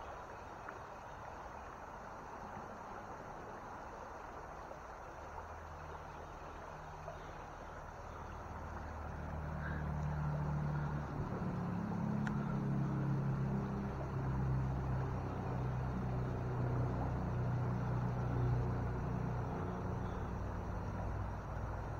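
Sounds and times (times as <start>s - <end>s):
shallow creek water rushing: 0.0s - 21.9s
motor engine humming: 6.0s - 21.9s.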